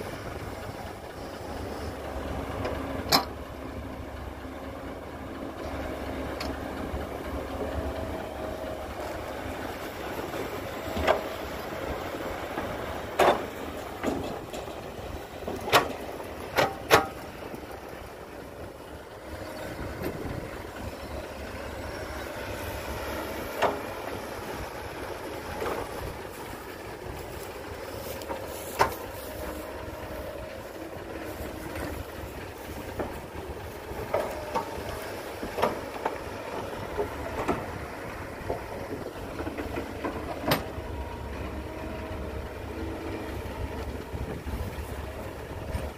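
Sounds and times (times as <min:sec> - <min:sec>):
excavator diesel engine: 0:00.0 - 0:45.9.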